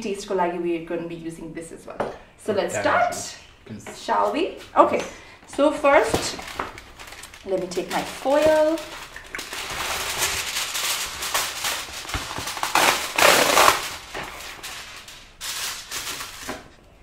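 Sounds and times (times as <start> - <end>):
aluminium foil crinkling: 5.6 - 16.8.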